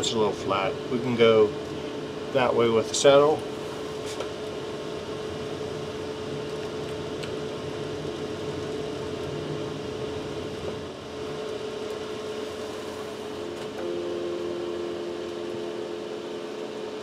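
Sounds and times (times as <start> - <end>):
machinery hum: 0.0 - 17.0
constant mid-pitched tone: 13.4 - 17.0.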